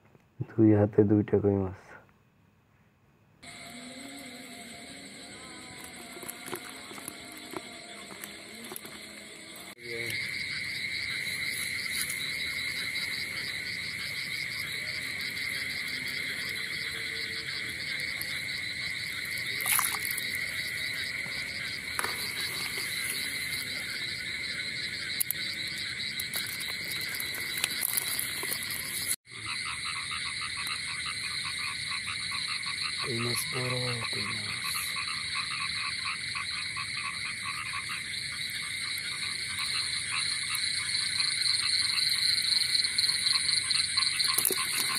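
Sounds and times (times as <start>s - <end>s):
chorus of frogs trilling: 3.4s - 44.9s
faint splashes: 19.5s - 20.5s.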